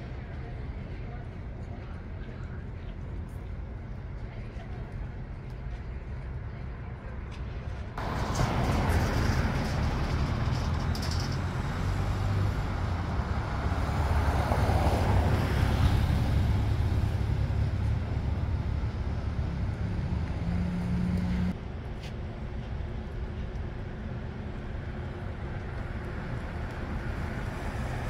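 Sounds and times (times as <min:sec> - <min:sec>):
vehicle engine rumble driving past: 0:08.0 - 0:21.6.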